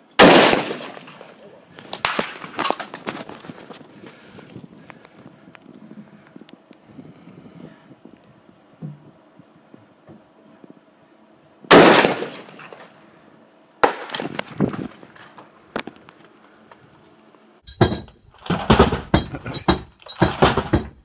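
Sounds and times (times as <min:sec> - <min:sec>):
rifle shot: 0:00.2 - 0:02.9, 0:11.7 - 0:12.9, 0:13.8 - 0:14.4
rough knocking and rustling: 0:00.6 - 0:05.8, 0:17.7 - 0:21.0.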